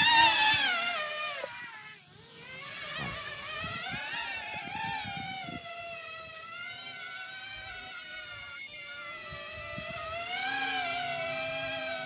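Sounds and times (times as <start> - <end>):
electric motors and propellers whining: 0.0 - 12.0.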